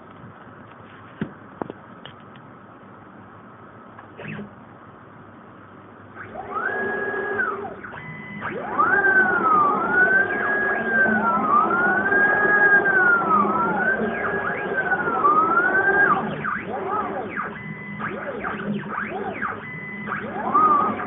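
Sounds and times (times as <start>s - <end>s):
steady motor hum: 5.8s - 21.0s
stepper motors whining: 6.2s - 21.0s.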